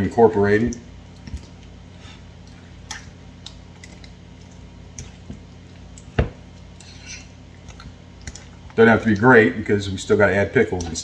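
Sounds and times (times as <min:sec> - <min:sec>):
steady low hum: 0:00.0 - 0:11.0
spoon stirring in glass bowl: 0:05.0 - 0:09.2.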